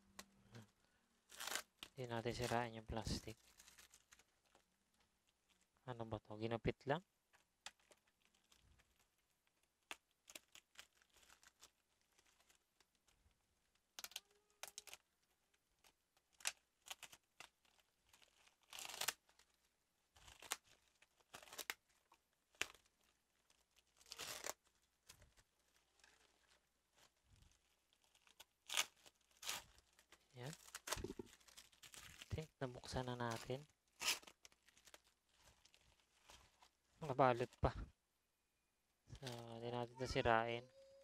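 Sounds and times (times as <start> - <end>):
plastic wrap crinkling: 0.5 - 5.8, 7.3 - 37.7, 39.1 - 41.0.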